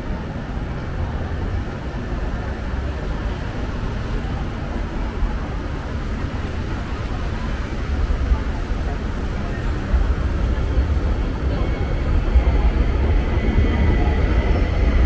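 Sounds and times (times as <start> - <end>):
deep rumble: 5.0 - 15.0.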